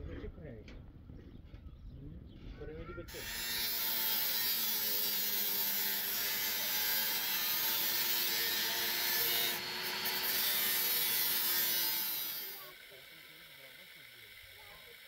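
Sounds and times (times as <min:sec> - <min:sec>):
tool rasping roofing sheets: 0:03.2 - 0:12.6.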